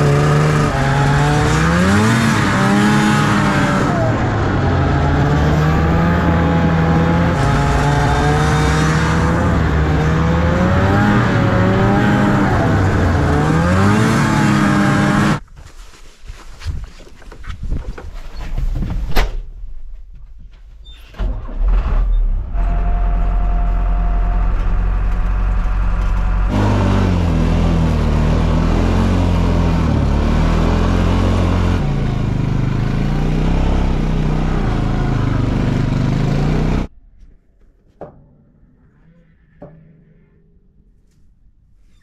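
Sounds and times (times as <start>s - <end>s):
engine running: 0.0s - 15.4s, 21.2s - 36.9s.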